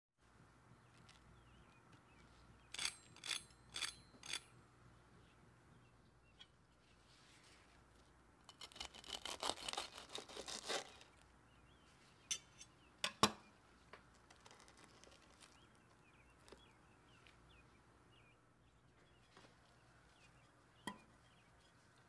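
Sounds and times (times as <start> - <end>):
fried crust crackling and crunching: 8.5 - 11.2, 14.1 - 16.7.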